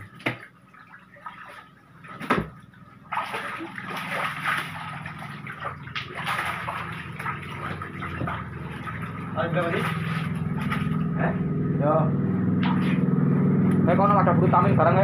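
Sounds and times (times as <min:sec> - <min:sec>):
fish thrashing in water: 0:00.0 - 0:11.2, 0:12.4 - 0:13.2
water sloshing and splashing: 0:00.0 - 0:11.7, 0:12.4 - 0:13.8
low steady hum: 0:00.0 - 0:15.0.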